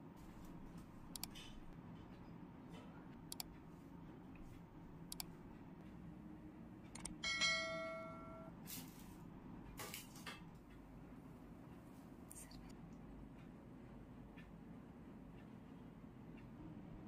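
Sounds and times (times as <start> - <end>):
soft clicks: 0.7 - 1.6, 3.1 - 3.7, 4.4 - 6.0
clear ringing tone: 7.2 - 8.6.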